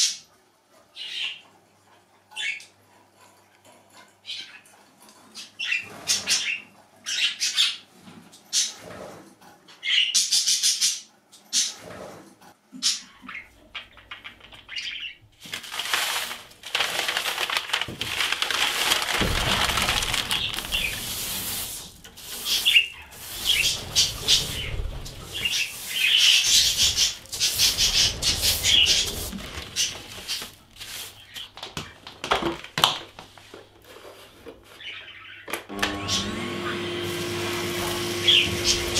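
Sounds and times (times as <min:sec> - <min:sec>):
budgies flapping wings: 0:15.8 - 0:30.6, 0:38.2 - 0:38.9.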